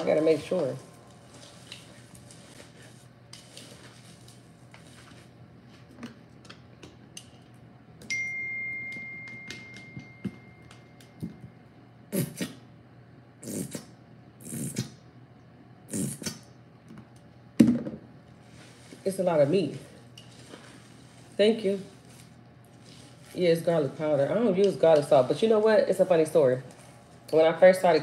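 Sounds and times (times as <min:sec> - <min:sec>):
clear chime: 0:08.0 - 0:11.0.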